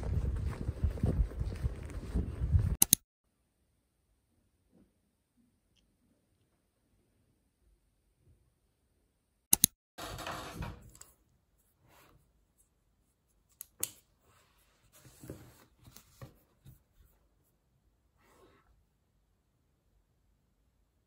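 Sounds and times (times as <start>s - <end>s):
papery rustling: 0.0s - 2.8s
sharp clicks: 2.8s - 3.0s, 9.5s - 9.8s.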